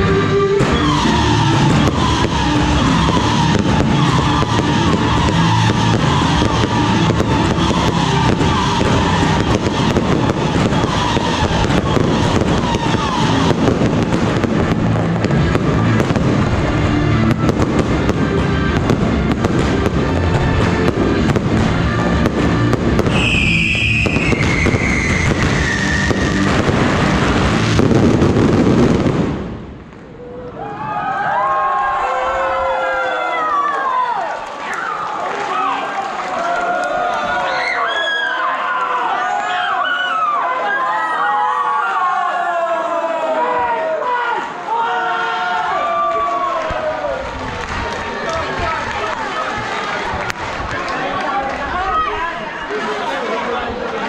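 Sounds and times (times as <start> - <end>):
fireworks crackles and bangs: 0.0 - 30.2, 46.0 - 54.0.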